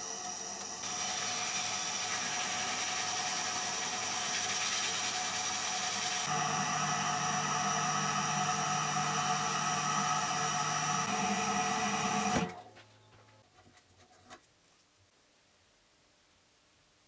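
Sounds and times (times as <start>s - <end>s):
wood lathe whining: 0.0s - 12.6s.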